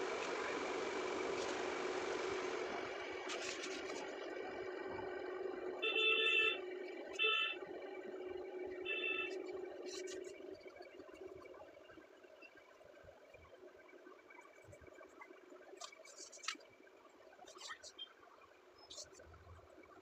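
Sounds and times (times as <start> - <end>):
engine hum: 0.0 - 11.3
vehicle horn honking: 5.8 - 6.6, 7.2 - 7.6, 8.9 - 9.4.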